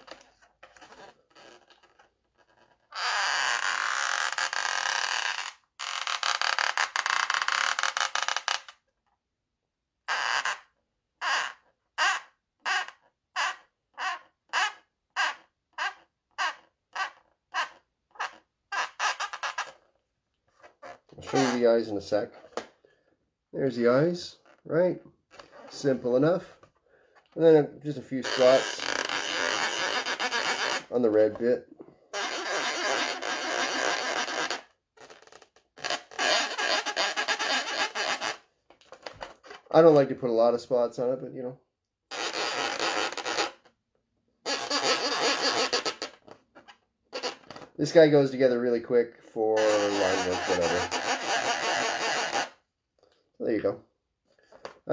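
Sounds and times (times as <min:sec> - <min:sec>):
paint pen squeaking on balloons: 0:00.0 - 0:08.8, 0:10.0 - 0:19.9, 0:20.5 - 0:22.7, 0:25.3 - 0:26.6, 0:28.0 - 0:31.5, 0:32.1 - 0:39.8, 0:42.1 - 0:43.8, 0:44.4 - 0:47.8, 0:49.6 - 0:52.6.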